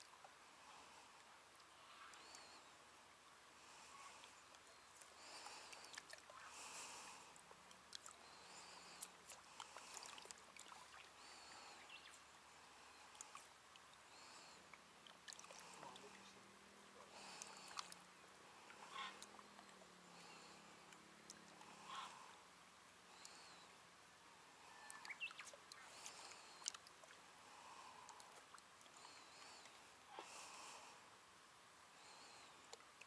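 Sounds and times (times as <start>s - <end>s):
faint low hum: 0.0s - 33.0s
lake water lapping: 3.6s - 22.4s, 24.4s - 31.1s
small ticks: 13.1s - 13.8s, 24.8s - 27.1s
faint high chirps: 24.6s - 26.8s.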